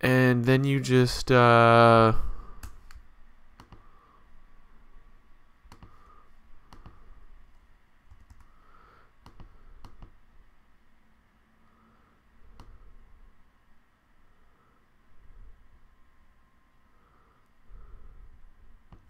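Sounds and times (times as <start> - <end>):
mouse and keyboard clicks: 9.2 - 10.2.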